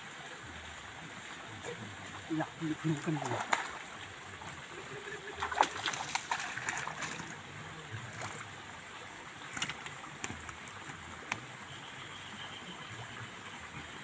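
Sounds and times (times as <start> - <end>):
fish splashing in water: 2.7 - 8.7, 9.3 - 12.7.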